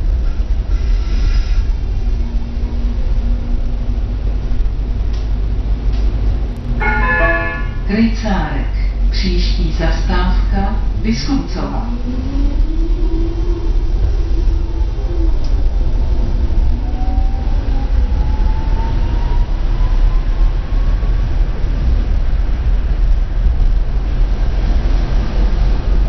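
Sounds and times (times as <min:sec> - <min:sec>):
tram wheels rumbling on rails: 0:00.0 - 0:26.0.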